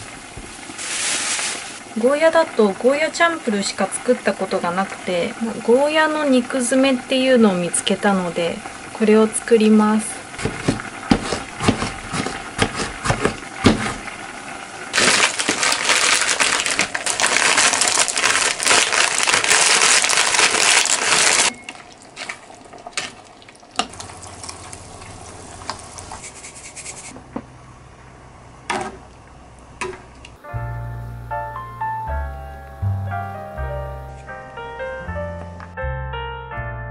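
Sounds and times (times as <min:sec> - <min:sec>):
crunching and scraping: 0:15.0 - 0:21.5.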